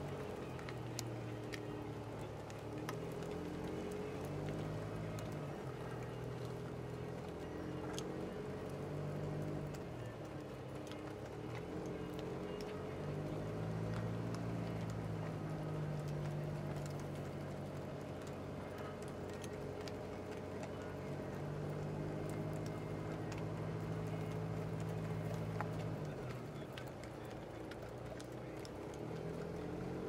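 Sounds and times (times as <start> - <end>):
car engine hum: 0.0 - 30.0
hooves clip-clopping on gravel: 0.0 - 30.0.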